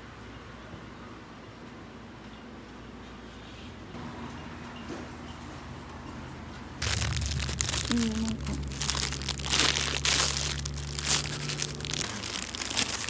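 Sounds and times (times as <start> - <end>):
steady low hum: 6.7 - 13.0
plastic bags crinkling: 6.8 - 13.0.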